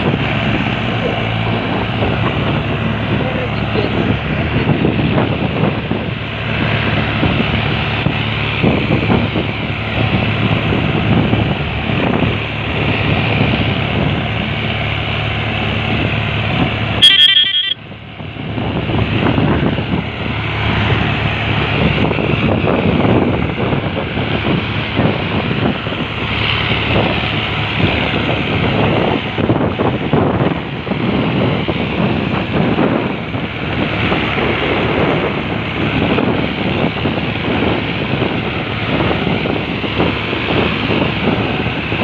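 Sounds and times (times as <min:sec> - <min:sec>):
tractor diesel engines droning: 0:00.0 - 0:42.0
loud high-pitched sound: 0:17.0 - 0:17.8.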